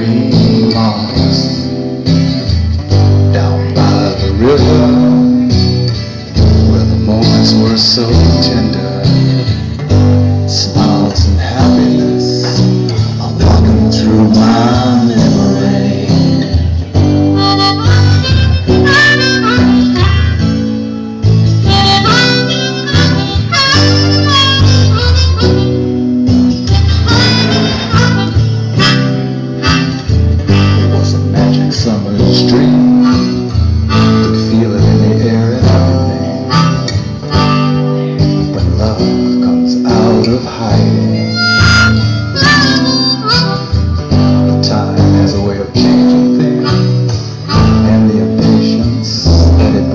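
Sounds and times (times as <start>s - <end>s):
strummed acoustic guitar: 0.0s - 49.9s
harmonica solo: 17.0s - 38.5s, 40.7s - 44.6s, 45.9s - 49.5s.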